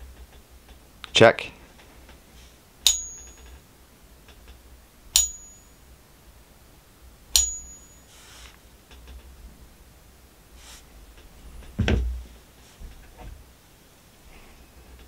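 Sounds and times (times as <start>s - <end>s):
coin struck with high ring: 2.8s - 3.5s, 5.2s - 5.8s, 7.4s - 8.1s.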